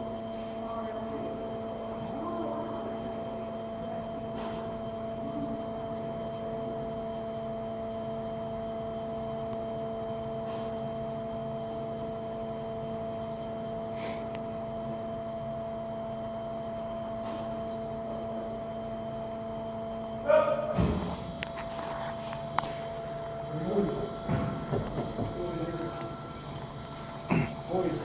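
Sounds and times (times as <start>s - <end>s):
tilt table drive humming: 21.4s - 28.0s.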